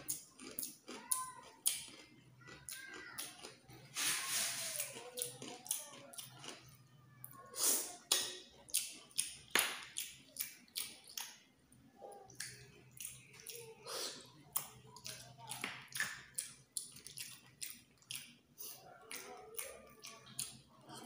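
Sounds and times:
slurping snails from shells: 1.6 - 6.8.

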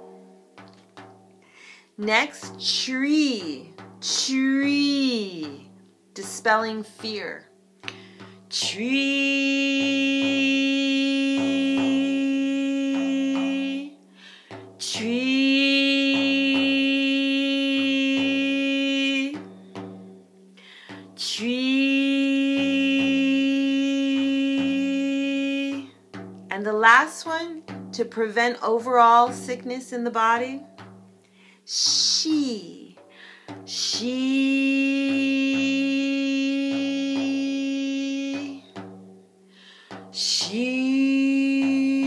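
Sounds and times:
hand tapping frame drum: 0.0 - 42.0
breath: 1.4 - 1.9, 7.9 - 8.5, 14.1 - 14.6, 20.6 - 21.0, 31.2 - 31.7, 33.0 - 33.6, 39.4 - 40.1
woman singing long shee: 1.9 - 19.6, 20.8 - 30.7, 31.6 - 38.8, 39.7 - 42.0
woman chanting a long tone: 2.0 - 7.4, 8.5 - 14.0, 14.8 - 19.5, 21.2 - 25.9, 26.5 - 30.6, 31.7 - 33.0, 33.7 - 38.7, 40.2 - 42.0
frame drum taps: 7.8 - 8.8, 29.0 - 31.2.

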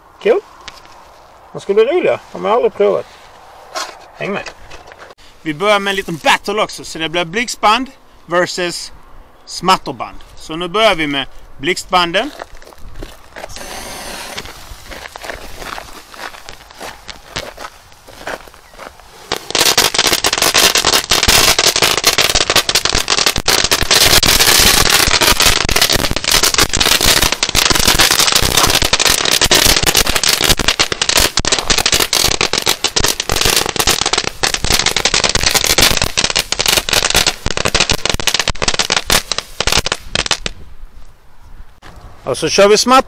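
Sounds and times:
firecracker strip crackling: 12.4 - 40.6.

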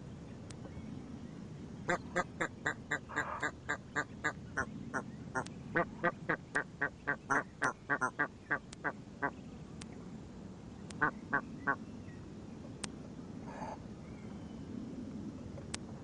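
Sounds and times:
goose honking: 1.9 - 4.7, 5.8 - 8.3.

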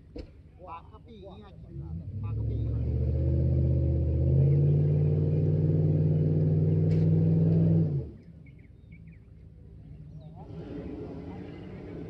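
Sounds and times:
vehicle engine revving: 1.7 - 8.3, 9.8 - 12.0.

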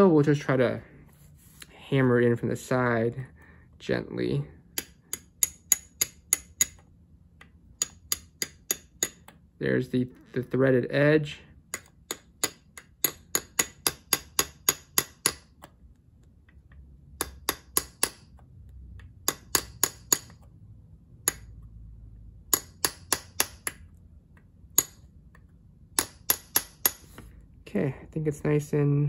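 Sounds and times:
hammer tapping metal punch: 4.7 - 9.4, 11.7 - 15.5, 17.2 - 18.4, 19.0 - 20.4, 22.4 - 23.8, 25.9 - 27.1.

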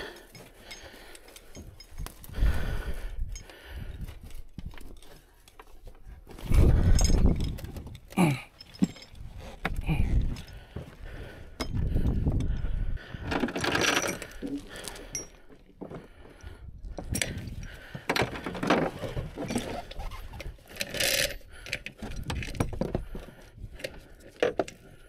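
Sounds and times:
metal hooks clinking: 0.0 - 2.3, 6.8 - 9.4
straps rustling: 18.4 - 21.4.

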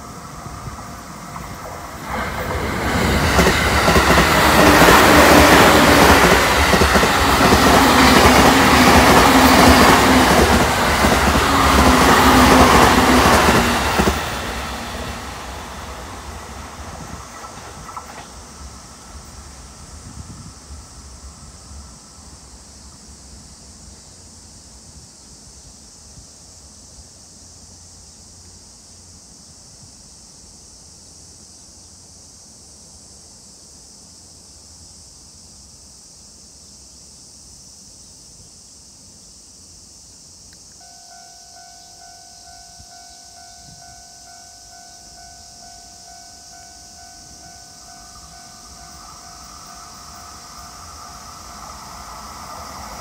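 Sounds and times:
passing train rumble: 0.0 - 24.2, 40.8 - 53.0
steady high hiss: 0.0 - 53.0
level crossing alarm: 40.8 - 51.8.

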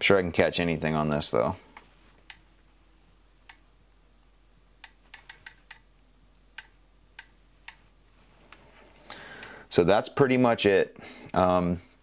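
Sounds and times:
sharp light clicks: 4.8 - 7.8.

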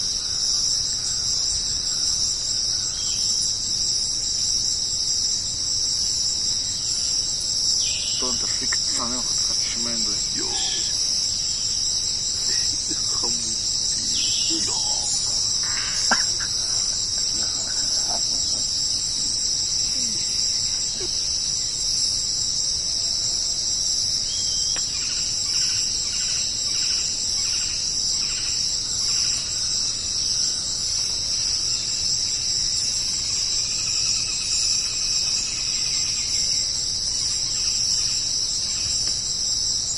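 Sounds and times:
insect chorus: 0.0 - 39.9
faint scattered calls: 6.9 - 21.8
evenly spaced chirps: 12.4 - 21.2.

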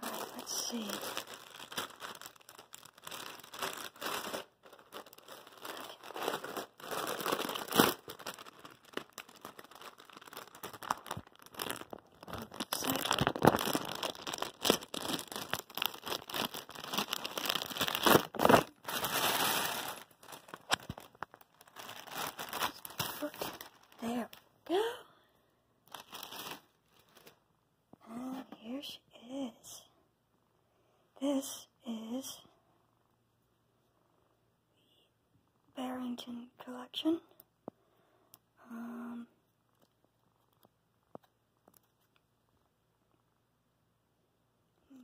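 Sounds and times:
plastic bag crinkling: 0.0 - 24.4, 25.9 - 27.4.

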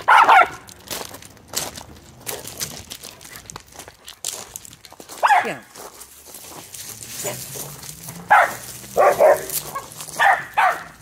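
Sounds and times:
crinkling rustles: 0.0 - 11.0
dog barking sharply: 0.1 - 0.6, 5.2 - 5.6, 8.3 - 11.0.

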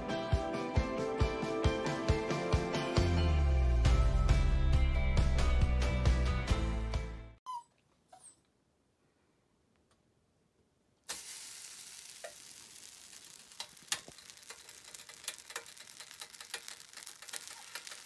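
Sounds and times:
rice sizzling on a griddle: 11.1 - 18.0.

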